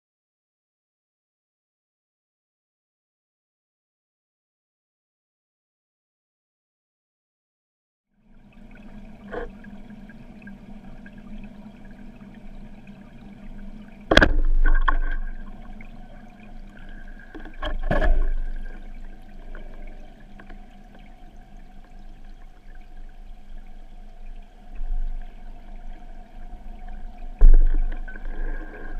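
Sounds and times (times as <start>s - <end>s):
underwater hiss: 27.8s - 28.9s.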